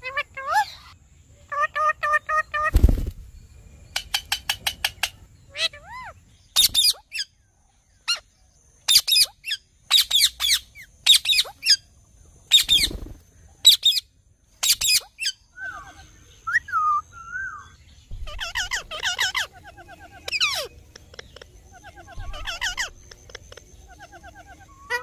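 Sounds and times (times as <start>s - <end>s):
parakeets screeching: 4.0s - 7.3s, 8.9s - 11.8s, 12.5s - 14.0s, 14.6s - 16.0s, 17.3s - 25.0s.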